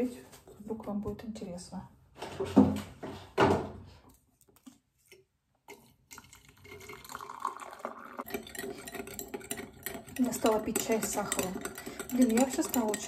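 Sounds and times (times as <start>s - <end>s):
water pouring into glass mug: 5.8s - 13.0s.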